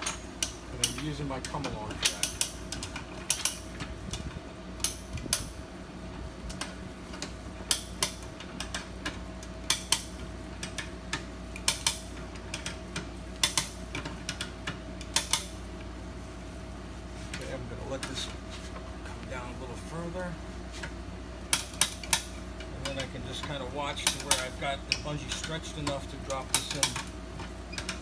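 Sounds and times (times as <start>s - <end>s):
ratchet pawl clicking: 21.5s - 28.0s.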